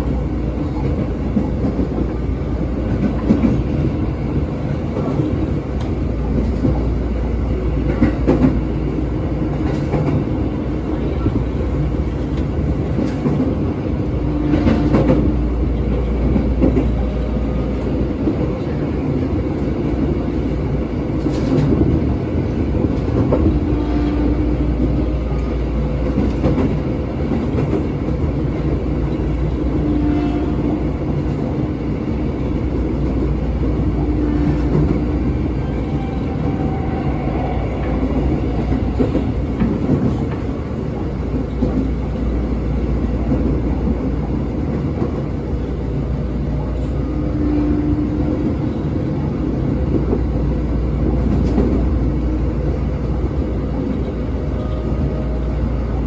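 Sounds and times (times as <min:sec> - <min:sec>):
train wheels rumbling on rail: 0:00.0 - 0:56.0
train horn blast: 0:14.2 - 0:15.3, 0:23.5 - 0:24.8, 0:29.8 - 0:31.0, 0:34.0 - 0:37.6, 0:47.0 - 0:48.4.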